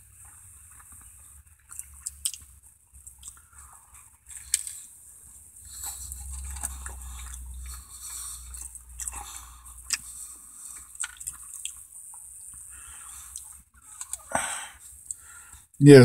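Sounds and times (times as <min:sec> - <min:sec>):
wet chewing and mouth smacks: 0:00.2 - 0:04.9, 0:05.7 - 0:14.3.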